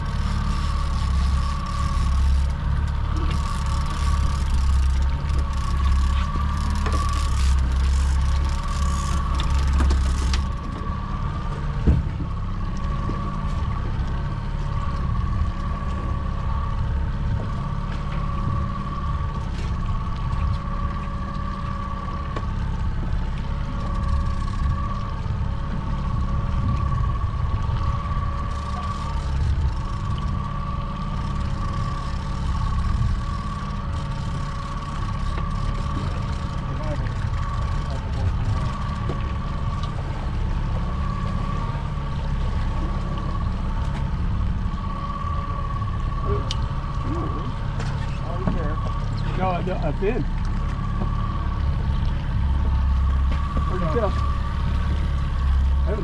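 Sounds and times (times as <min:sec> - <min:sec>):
boat engine rumble and whine: 0:00.0 - 0:56.0.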